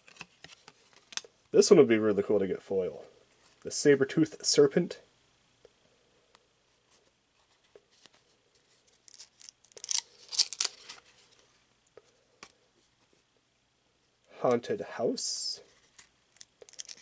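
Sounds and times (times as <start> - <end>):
cards sliding and flicking: 9.0 - 11.1, 15.8 - 17.0.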